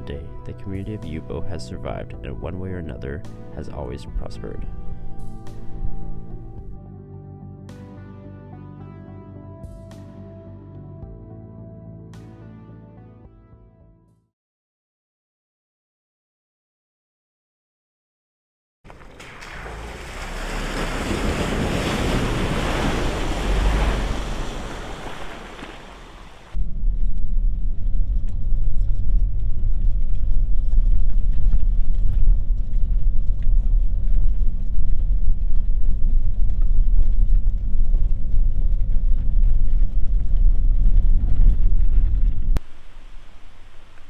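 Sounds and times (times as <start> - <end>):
vehicle splashing through puddle: 18.9 - 26.6
engine and road rumble: 18.9 - 44.0.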